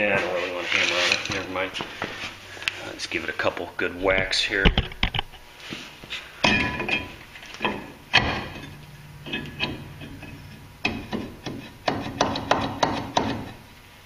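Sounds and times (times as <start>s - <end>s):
brake rotor knocking and clunking: 6.4s - 13.6s.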